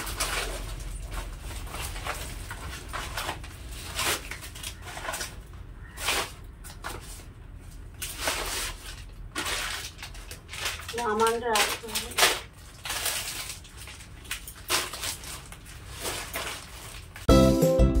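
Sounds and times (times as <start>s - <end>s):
plastic bags rustling: 0.0s - 17.3s.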